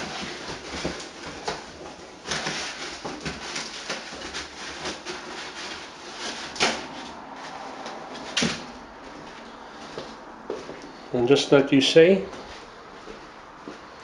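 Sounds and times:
packing material rustling: 0.0 - 10.2.

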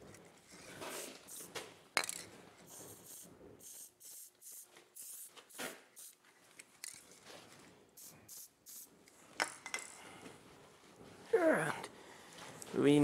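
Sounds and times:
aerosol can spraying bursts: 2.7 - 6.2, 8.0 - 8.9.

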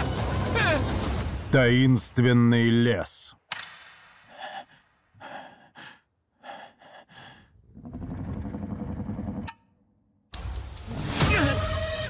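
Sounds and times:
man gasping and panting: 4.2 - 7.6.

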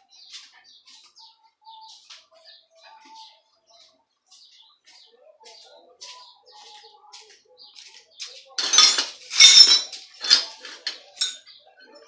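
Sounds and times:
metal clanking: 8.6 - 11.4.

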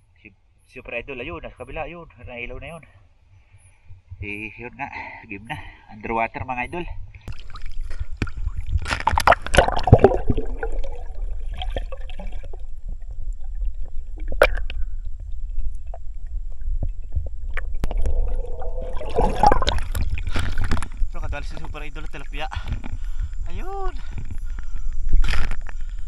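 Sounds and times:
bubbling splash: 7.3 - 21.2
underwater water gurgling: 7.3 - 26.0
steady low rumble: 7.8 - 26.0.

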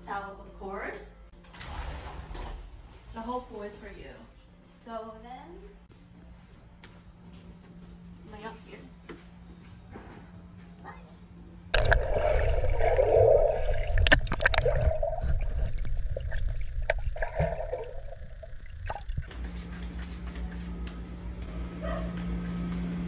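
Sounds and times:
bubbles and clicks: 11.8 - 19.3
underwater gurgling: 11.8 - 19.3.

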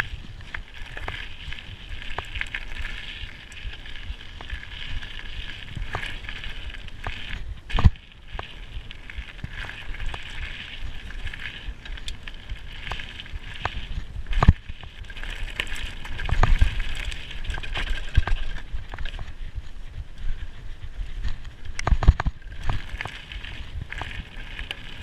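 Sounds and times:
bike rattling and knocking over bumps: 0.0 - 19.5, 21.2 - 25.0
mountain bike tyre and drivetrain noise: 0.0 - 25.0.

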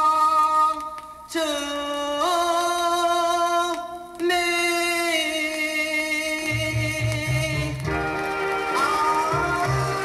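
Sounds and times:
person singing long notes: 4.3 - 10.0.

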